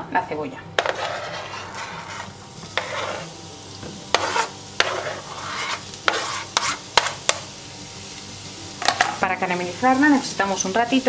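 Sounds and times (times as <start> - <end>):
knife scraping cutting board: 0.8 - 3.3, 4.1 - 7.2
onion sizzling in oil: 0.8 - 11.0.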